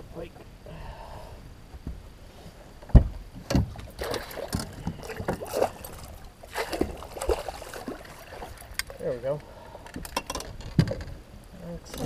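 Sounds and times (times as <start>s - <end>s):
knocks and thuds on a boat: 2.8s - 5.7s, 9.9s - 11.3s
water splashing: 3.9s - 9.0s.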